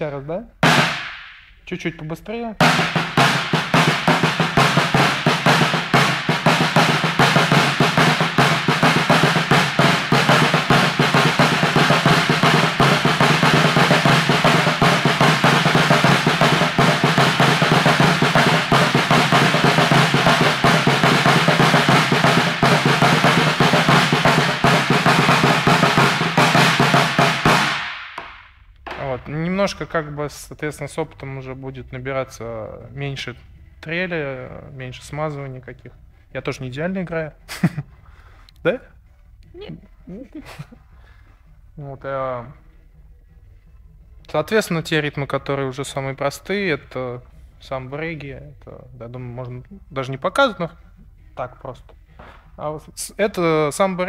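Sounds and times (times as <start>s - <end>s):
snare drum rolls: 0.6s - 1.5s, 2.6s - 29.4s.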